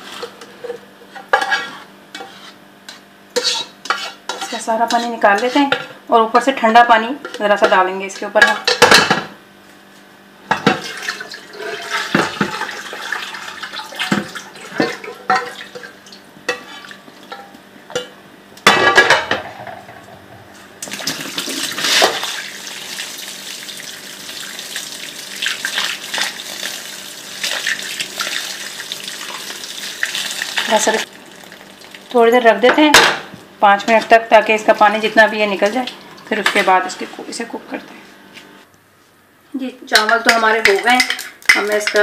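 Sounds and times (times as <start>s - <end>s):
water running over rice: 22.2s - 32.1s.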